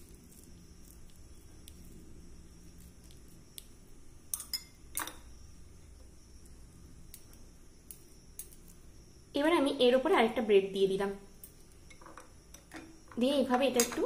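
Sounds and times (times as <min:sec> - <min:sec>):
spoon clinking on glass bowl: 0:04.3 - 0:05.2.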